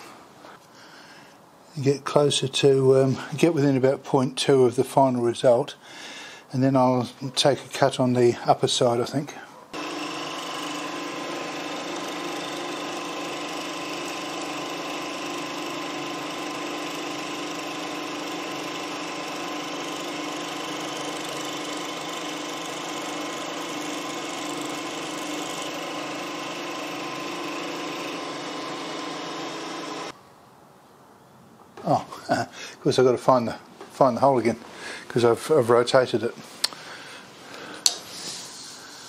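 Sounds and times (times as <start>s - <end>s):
milling machine whine: 9.8s - 30.2s.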